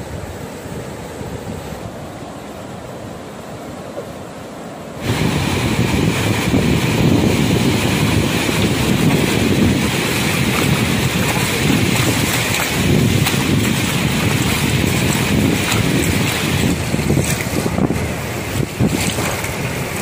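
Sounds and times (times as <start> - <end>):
surf washing in shallow water: 0.0 - 20.0
wind on the microphone: 5.0 - 20.0.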